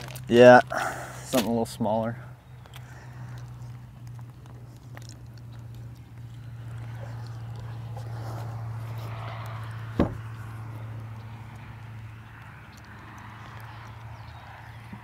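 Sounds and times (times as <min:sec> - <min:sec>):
compartment lid knocking shut: 0:10.0 - 0:10.2.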